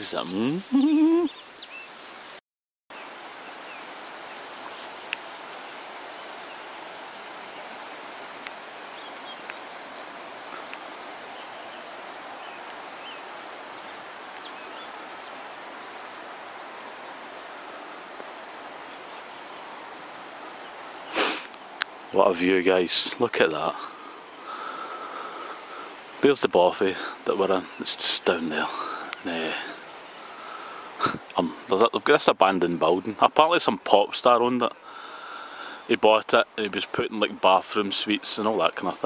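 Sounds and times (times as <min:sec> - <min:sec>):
faint ticks and chirps: 0:03.0 - 0:22.1
rushing outdoor ambience: 0:03.0 - 0:39.0.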